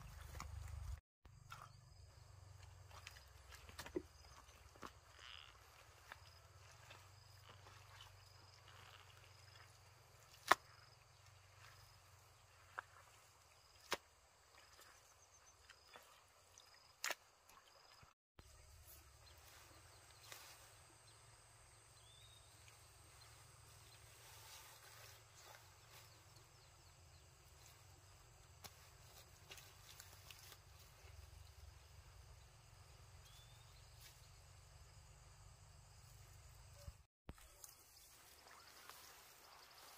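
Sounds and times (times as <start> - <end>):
hands squelching in wet mud: 2.8 - 18.1
sharp wet slaps: 10.2 - 10.9, 13.8 - 14.9, 16.9 - 17.6.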